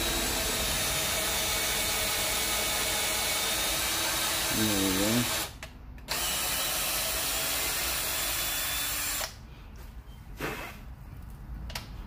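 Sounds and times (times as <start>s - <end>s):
cordless drill drilling: 0.0s - 9.4s.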